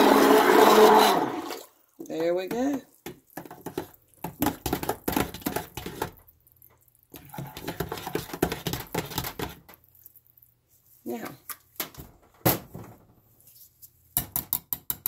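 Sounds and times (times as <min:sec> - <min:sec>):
stick blender mixing: 0:00.0 - 0:10.2.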